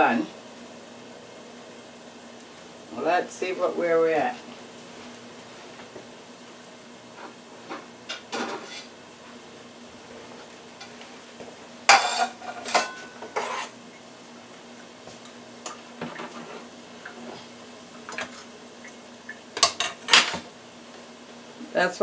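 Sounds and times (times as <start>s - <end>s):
plate clattering on countertop: 11.9s - 13.7s.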